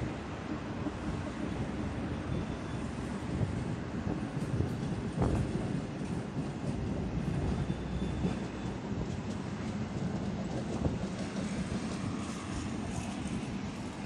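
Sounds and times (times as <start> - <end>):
tram wheels rumbling on rails: 0.0 - 14.0
faint high wheel squeal: 2.0 - 3.2, 7.3 - 8.9.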